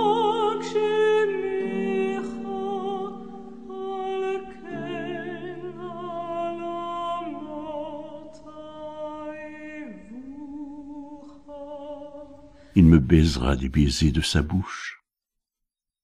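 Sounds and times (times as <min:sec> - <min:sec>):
person singing with vibrato: 0:11.6 - 0:15.0.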